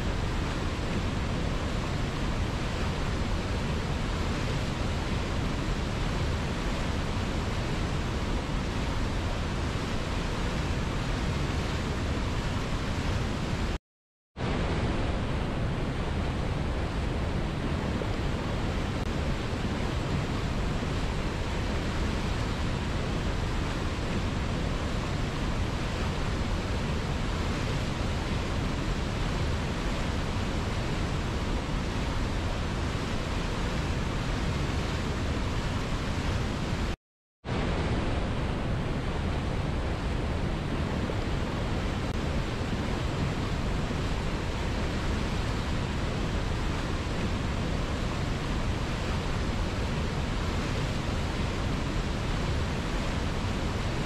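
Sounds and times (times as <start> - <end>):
water rushing over boulders: 0.0 - 13.8, 14.4 - 54.0.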